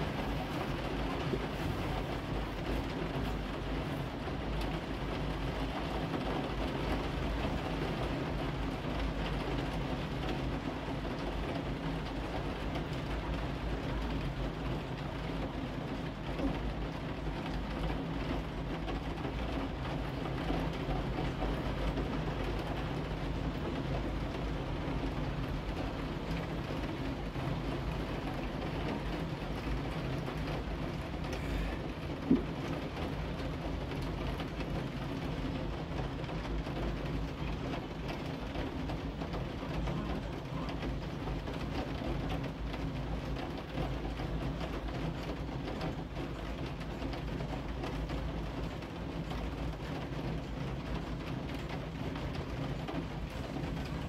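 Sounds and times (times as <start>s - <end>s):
heavy rain hissing: 27.0s - 33.4s.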